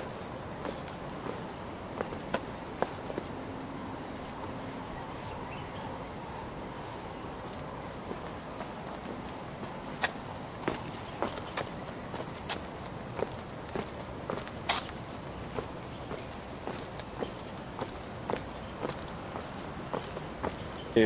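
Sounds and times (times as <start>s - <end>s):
footsteps on concrete steps: 0.0s - 4.5s, 7.2s - 21.0s
high-pitched insect chorus: 0.0s - 21.0s.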